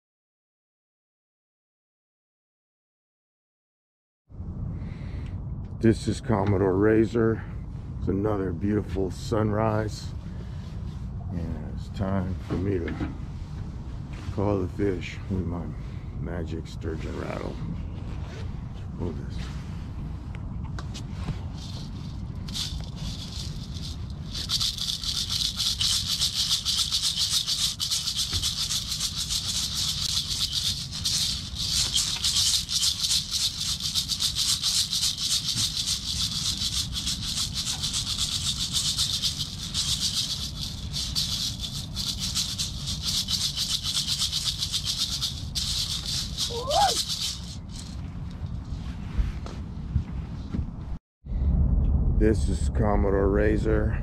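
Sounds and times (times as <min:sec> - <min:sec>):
rattles shaken rapidly: 0:21.5 - 0:48.0.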